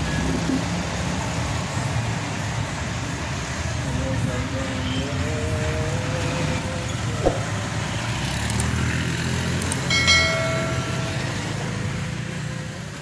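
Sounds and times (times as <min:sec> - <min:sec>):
truck engine rumbling: 0:05.2 - 0:13.0
bell-like chime: 0:09.9 - 0:11.6.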